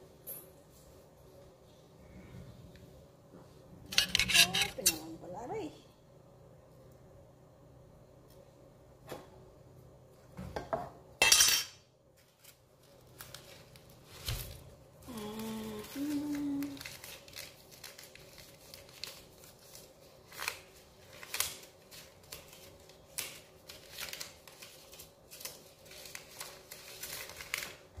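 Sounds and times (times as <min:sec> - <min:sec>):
coins and papers handled: 0:03.9 - 0:05.0
person humming: 0:15.0 - 0:16.8.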